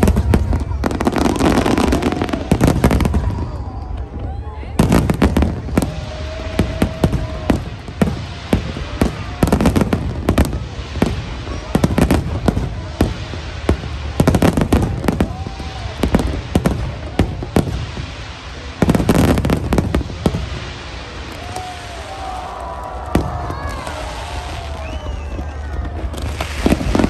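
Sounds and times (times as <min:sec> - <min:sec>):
fireworks bursting: 0:00.0 - 0:27.0.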